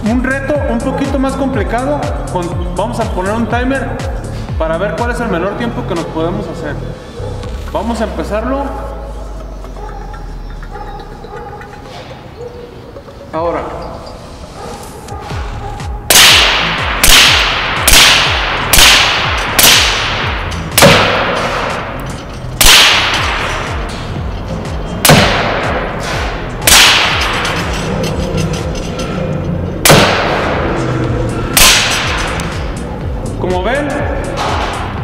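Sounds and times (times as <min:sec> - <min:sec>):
air rifle shots: 0:16.1 - 0:22.0, 0:22.6 - 0:24.0, 0:25.0 - 0:27.8, 0:29.8 - 0:30.8, 0:31.6 - 0:32.7.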